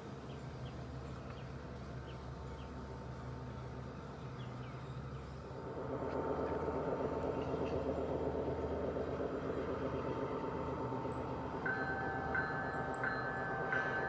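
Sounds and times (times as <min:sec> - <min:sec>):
faint motor whine: 0:00.0 - 0:14.0
model train wheels rumbling on rails: 0:05.5 - 0:14.0.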